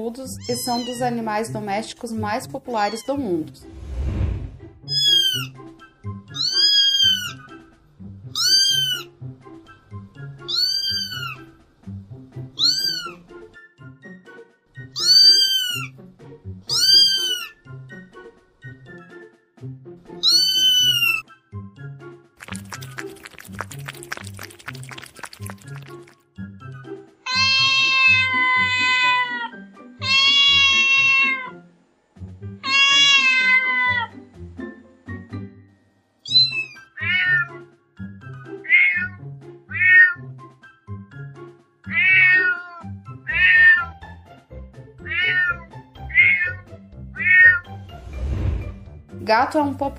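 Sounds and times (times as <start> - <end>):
background music: 0.0 - 49.9
cat meowing: 0.4 - 1.0, 2.8 - 3.3, 4.9 - 5.5, 6.3 - 7.4, 8.3 - 9.1, 10.5 - 11.5, 12.6 - 13.2, 15.0 - 15.9, 16.7 - 17.6, 20.2 - 21.2, 27.3 - 31.6, 32.6 - 34.1, 36.2 - 37.6, 38.6 - 40.3, 41.9 - 44.0, 45.0 - 47.7.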